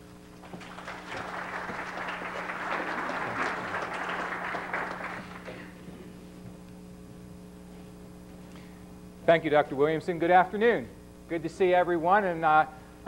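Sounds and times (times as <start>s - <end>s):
low electrical hum: 0.0s - 13.0s
audience applauding: 0.4s - 5.8s.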